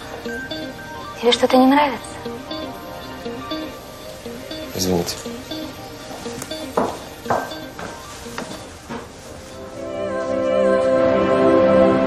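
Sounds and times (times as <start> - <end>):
soft background music: 0.0 - 12.0
faint knocks: 6.1 - 9.1.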